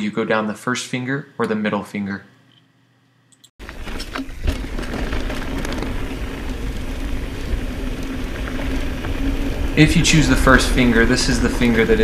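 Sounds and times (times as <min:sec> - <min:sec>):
bike tyre noise and rattling: 0:03.6 - 0:12.0
wind rushing over microphone: 0:04.3 - 0:12.0.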